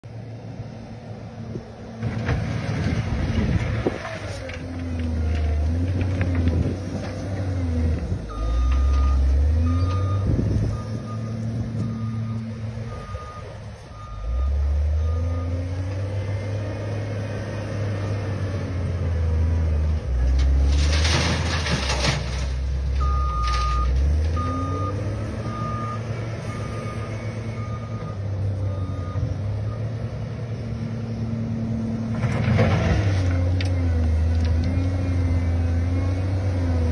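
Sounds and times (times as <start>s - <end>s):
diesel engine revving under load: 0.1s - 36.9s
reversing alarm beeps: 8.3s - 15.6s, 23.0s - 29.9s.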